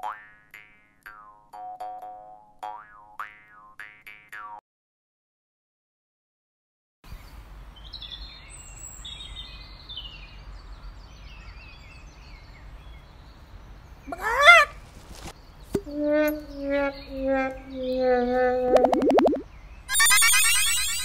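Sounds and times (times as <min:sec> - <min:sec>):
small birds chirping: 0:07.1 - 0:19.9
loud pitched sound gliding upward: 0:18.6 - 0:21.0.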